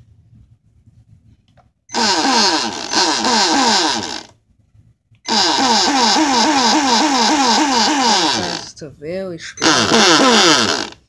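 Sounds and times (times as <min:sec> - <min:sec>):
toy boat motor buzzing whine: 0:01.9 - 0:04.3, 0:05.3 - 0:08.8, 0:09.6 - 0:11.0.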